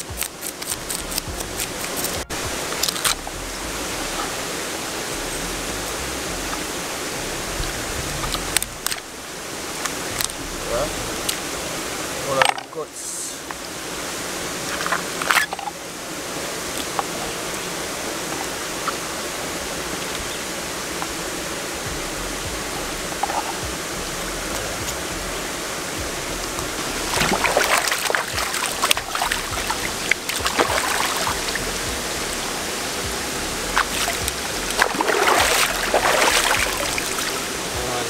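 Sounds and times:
stream running over rock: 0.0s - 38.0s
fish splashing in water: 26.8s - 37.5s.

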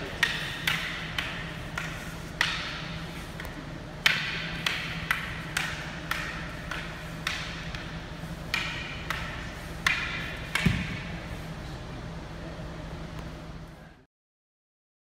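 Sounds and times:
faint steady hum: 0.0s - 14.1s
wooden sticks clacking together: 0.2s - 7.9s.

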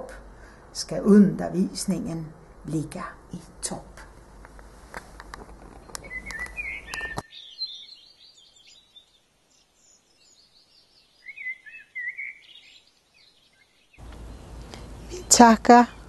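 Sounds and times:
songbirds chirping: 0.0s - 16.0s
sharp clicks: 5.2s - 7.2s.

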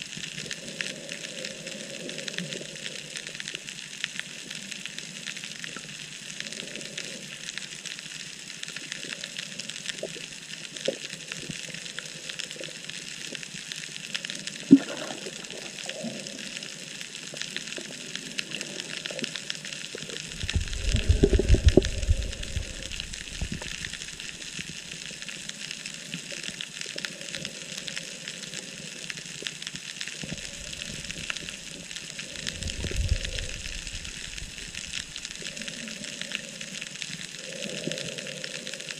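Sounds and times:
underwater hiss with crackling: 0.0s - 38.9s
low rumbling bumps: 20.4s - 23.8s.

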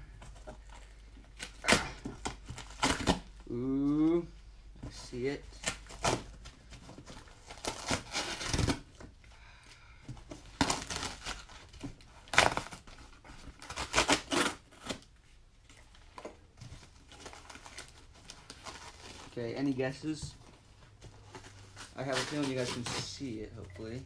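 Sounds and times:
tape and cardboard ripping: 0.6s - 3.5s, 5.5s - 9.0s, 10.4s - 15.1s, 21.2s - 23.3s.

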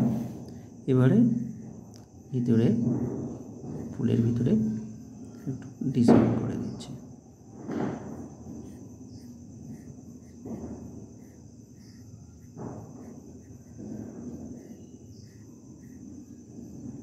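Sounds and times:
insects trilling: 0.0s - 17.0s
pencil scratching on paper: 8.1s - 16.3s.

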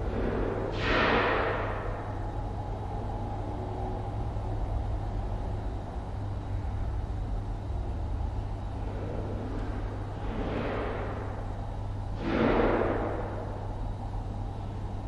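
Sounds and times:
office ambience hum: 0.0s - 15.0s.

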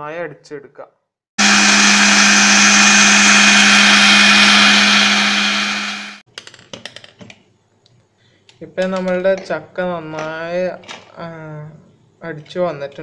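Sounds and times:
mixer grinder running: 1.4s - 6.2s.

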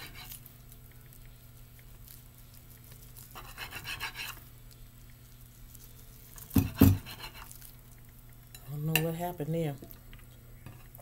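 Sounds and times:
knife sawing through sushi roll: 0.0s - 0.4s, 3.3s - 4.4s, 6.5s - 7.6s
knife knocking on plate: 6.5s - 7.2s.

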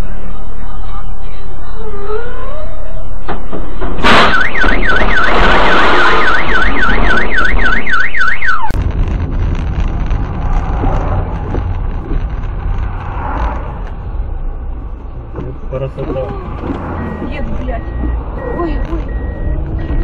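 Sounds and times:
car alarm wailing: 1.8s - 8.8s
truck crashing into car: 3.3s - 7.4s
road and engine rumble: 8.5s - 20.0s.

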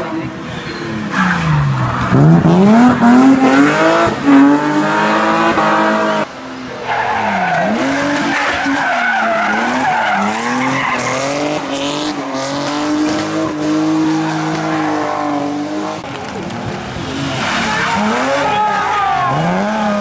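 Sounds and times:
car engine revving: 1.0s - 20.0s
tyres squealing: 6.8s - 11.6s.

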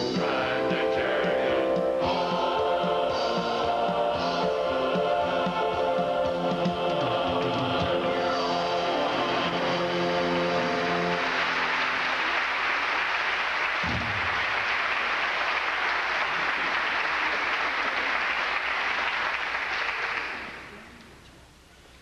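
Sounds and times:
audience applauding: 9.1s - 20.9s
low thump: 13.8s - 14.4s.

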